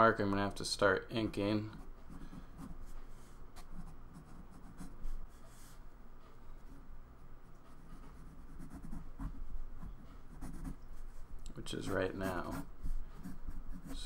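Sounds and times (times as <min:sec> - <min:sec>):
pencil scratching on paper: 0:01.7 - 0:05.8, 0:07.6 - 0:14.0.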